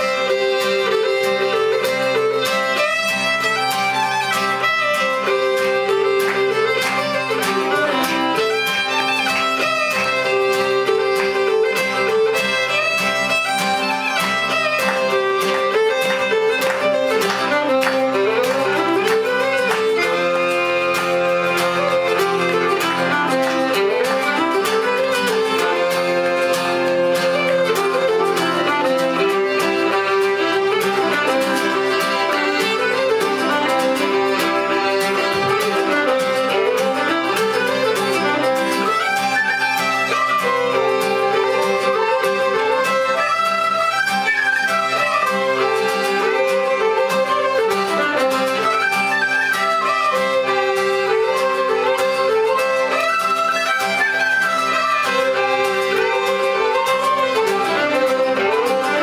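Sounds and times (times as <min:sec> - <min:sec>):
accordion: 0:00.0 - 0:59.0
acoustic guitar: 0:00.0 - 0:59.0
fiddles: 0:00.0 - 0:59.0
tin whistles: 0:00.0 - 0:59.0.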